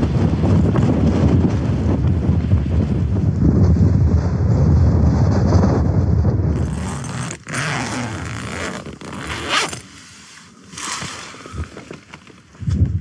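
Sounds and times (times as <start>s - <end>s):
wind buffeting microphone: 0.0s - 9.7s, 11.0s - 13.0s
tent zip rasping open: 6.5s - 10.0s, 10.7s - 12.0s.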